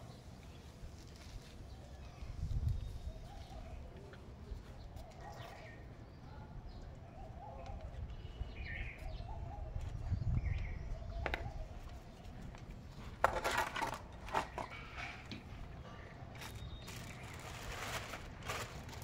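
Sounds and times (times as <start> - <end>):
street background noise: 0.0 - 19.0
metal plate scraping on paving: 13.2 - 15.2.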